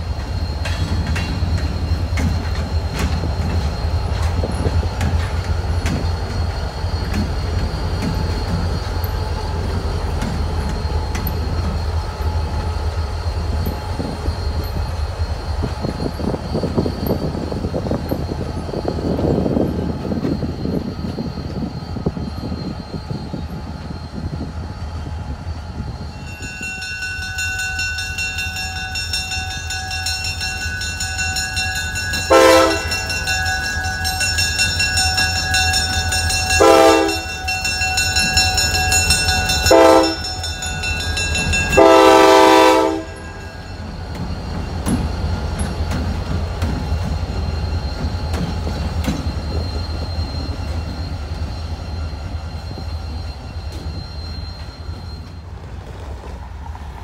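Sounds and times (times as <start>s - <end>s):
diesel locomotive engines running: 0.0s - 57.0s
train air horn blasts: 32.3s - 33.0s, 36.6s - 37.2s, 39.7s - 40.2s, 41.8s - 43.2s.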